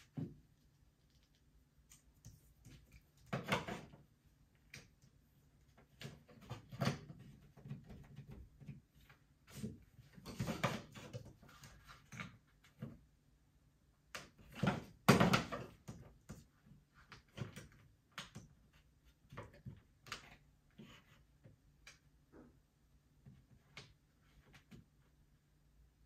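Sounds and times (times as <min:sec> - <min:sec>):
knocks and clunks of handling: 0:02.2 - 0:13.1, 0:14.1 - 0:21.9.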